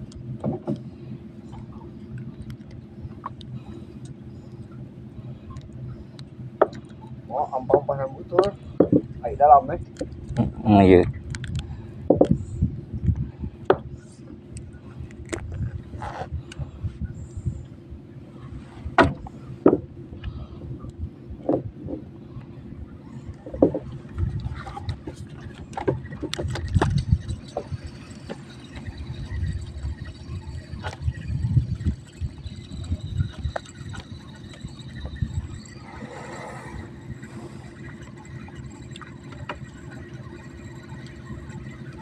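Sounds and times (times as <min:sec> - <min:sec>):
water lapping against boat: 0:03.0 - 0:17.6, 0:18.2 - 0:42.0
sharp clicks and knocks: 0:05.6 - 0:07.1, 0:11.2 - 0:12.4, 0:23.4 - 0:29.6.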